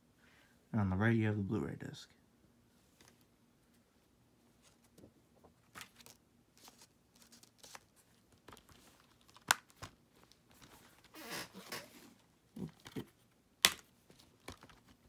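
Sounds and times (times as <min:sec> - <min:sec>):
plastic case snapping: 0:13.6 - 0:13.9.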